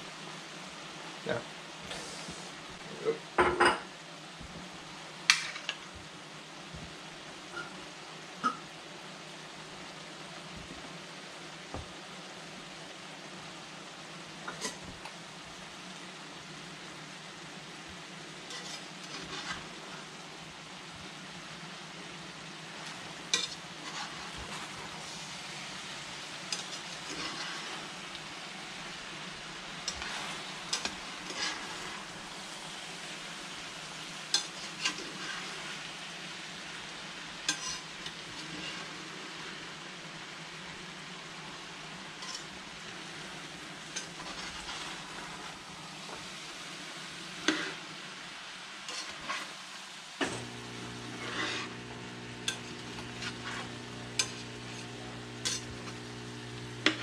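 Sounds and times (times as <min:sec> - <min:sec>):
food sizzling in a frying pan: 0:00.0 - 0:57.0
metal spatula scraping pan: 0:18.5 - 0:20.1, 0:22.8 - 0:25.3, 0:26.5 - 0:28.1, 0:29.8 - 0:32.4, 0:34.3 - 0:35.9, 0:37.5 - 0:39.6, 0:42.2 - 0:43.2, 0:43.9 - 0:46.2, 0:47.4 - 0:47.9, 0:48.9 - 0:49.6, 0:50.2 - 0:57.0.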